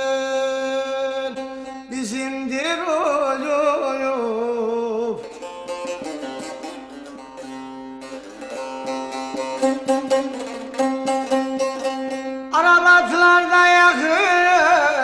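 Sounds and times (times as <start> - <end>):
man singing with vibrato: 0.0 - 7.0, 11.0 - 15.0
plucked long-necked lute: 0.0 - 15.0.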